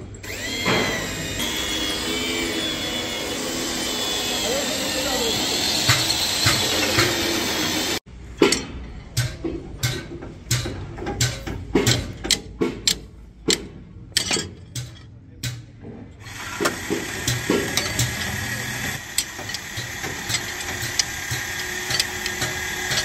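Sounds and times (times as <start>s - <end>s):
steady mechanical noise: 0.0s - 9.2s, 16.1s - 23.0s
metallic clinks of wrench: 14.2s - 15.1s, 19.2s - 23.0s.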